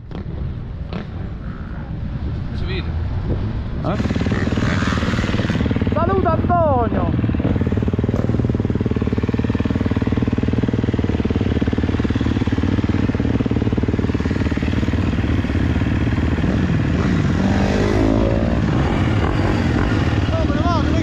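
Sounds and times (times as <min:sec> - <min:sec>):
motorbike engine idling: 0:04.0 - 0:17.1.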